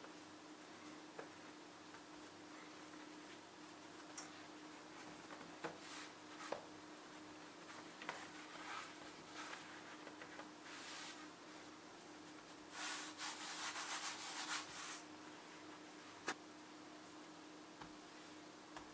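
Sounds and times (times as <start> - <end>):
faint steady hum: 0.0 - 18.9
hands rubbing dough: 12.4 - 15.1.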